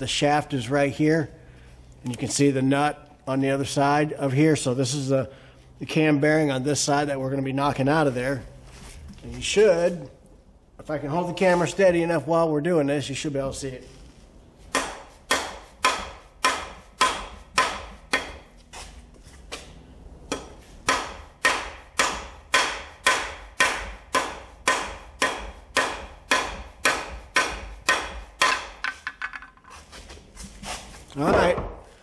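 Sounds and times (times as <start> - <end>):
hammer striking metal tool: 20.3 - 29.2.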